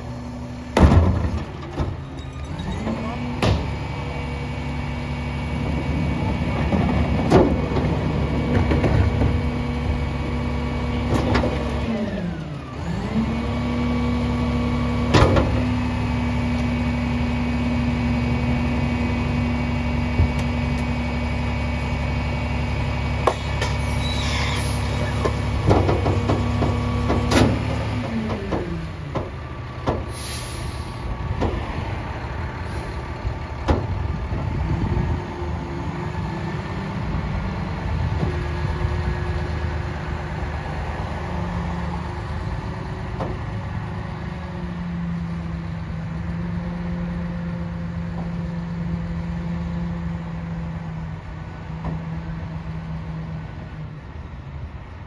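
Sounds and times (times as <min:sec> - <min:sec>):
diesel truck engine running: 0:00.0 - 0:55.0
metal clunks and knocks: 0:00.8 - 0:03.7, 0:25.2 - 0:30.1
short hisses: 0:30.1 - 0:31.0.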